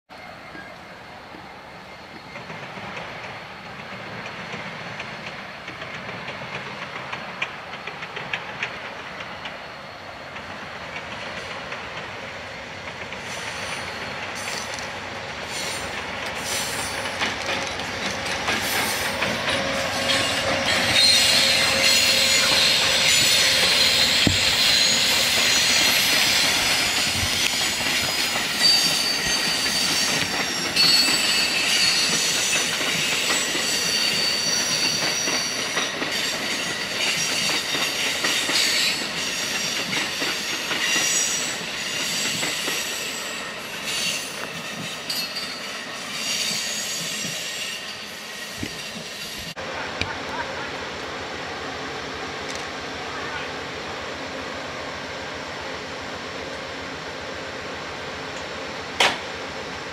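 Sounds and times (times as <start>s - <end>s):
passenger train passing: 0.1s - 59.9s
train wheels squealing: 0.2s - 6.8s, 7.4s - 11.6s, 13.1s - 49.6s
wheels clicking over rail joints: 2.1s - 9.7s, 10.3s - 43.0s.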